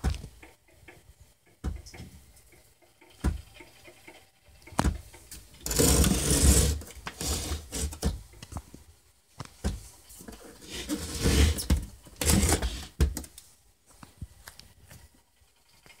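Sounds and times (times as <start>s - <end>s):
plastic scraping on stone countertop: 5.6s - 8.2s, 10.3s - 13.1s.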